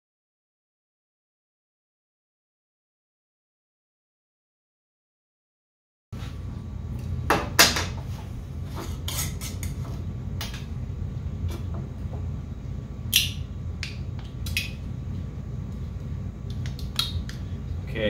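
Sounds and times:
steady low hum: 6.2s - 18.0s.

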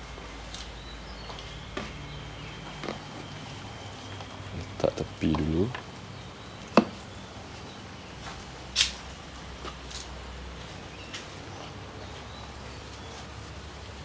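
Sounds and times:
steady low background noise: 0.0s - 14.0s.

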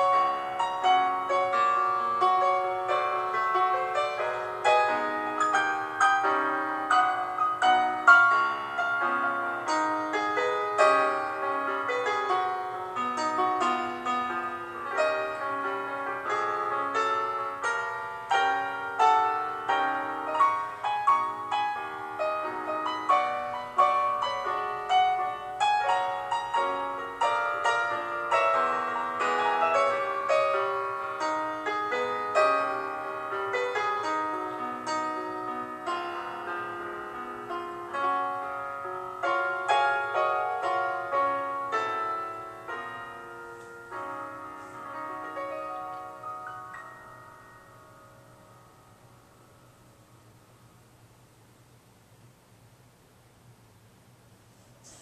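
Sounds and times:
piano music: 0.0s - 51.2s.

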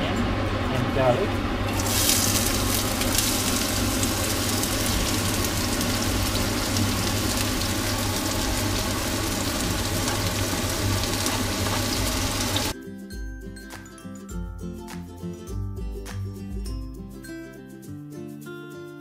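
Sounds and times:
onion and garlic sizzling in oil: 1.6s - 12.7s.

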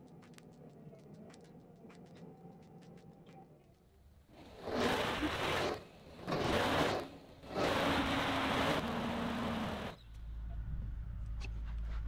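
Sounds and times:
loader engine and hydraulics surging: 4.3s - 12.0s
low hum: 4.4s - 12.0s.

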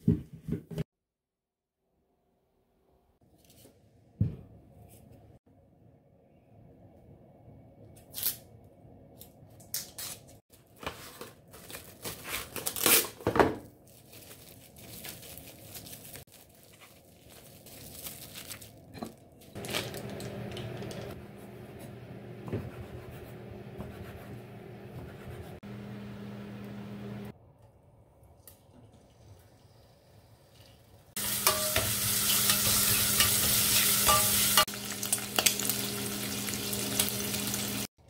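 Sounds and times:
onion skin crackling and tearing: 11.5s - 13.2s, 13.8s - 20.2s.

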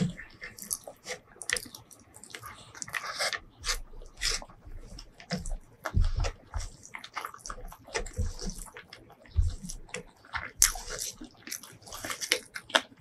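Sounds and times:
fingers squishing rice: 0.0s - 13.0s
wet chewing smacks: 0.0s - 13.0s.

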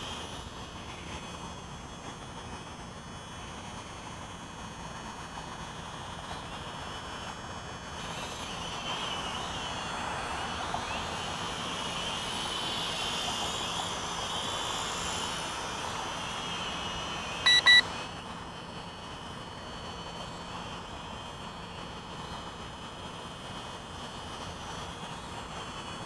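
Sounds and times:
quadcopter propellers whining: 0.0s - 26.0s
short electronic beeps: 17.4s - 17.9s.

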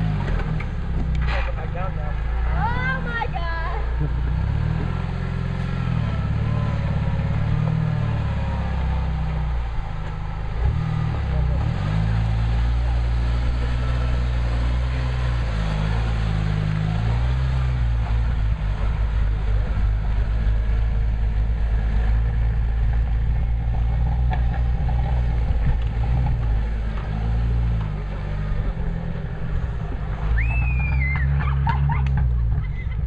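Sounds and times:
car engine revving: 0.0s - 33.0s.

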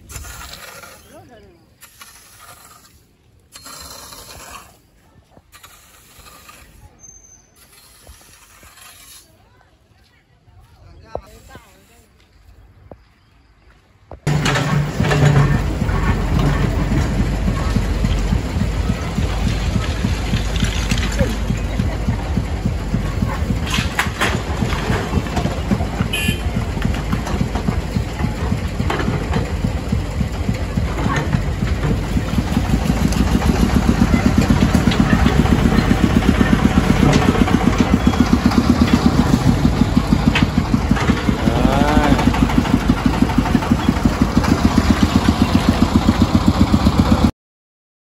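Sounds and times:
bricks and rubble clattering: 14.3s - 26.0s
engine chugging: 14.3s - 47.3s.

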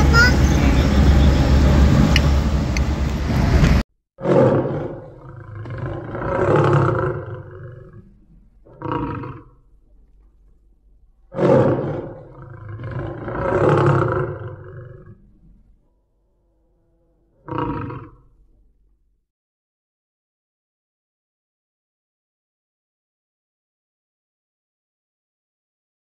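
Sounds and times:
car noise: 0.0s - 3.8s
tiger grunt: 4.2s - 9.6s, 11.3s - 15.2s
tiger roaring: 4.2s - 15.6s, 16.2s - 18.7s.

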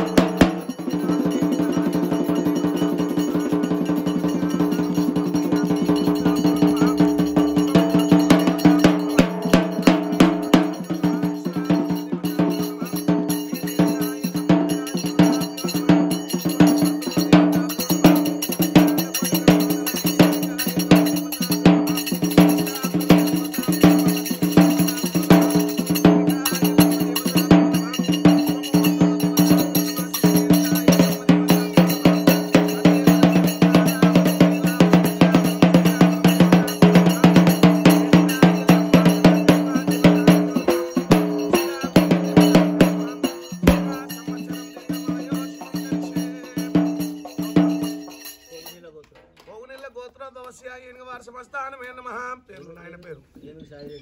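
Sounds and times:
steady ringing tone: 0.0s - 48.8s
bell-like metallic percussion: 0.0s - 49.1s.

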